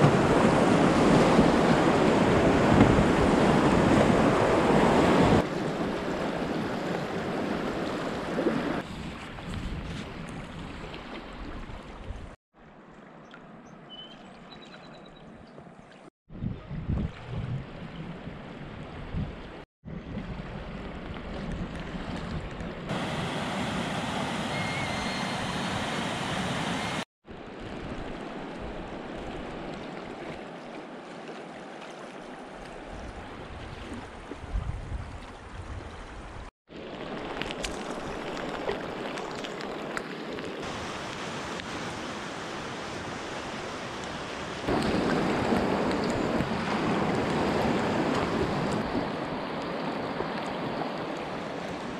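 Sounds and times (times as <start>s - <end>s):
wind buffeting microphone: 0.0s - 12.4s, 16.3s - 23.2s, 32.8s - 36.5s
river water rushing: 22.9s - 27.0s, 36.9s - 51.9s.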